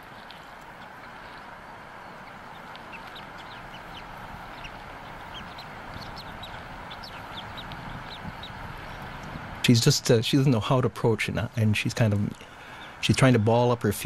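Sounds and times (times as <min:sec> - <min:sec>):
steady hiss: 0:00.0 - 0:14.0
chick peeping high chirps: 0:02.1 - 0:09.4.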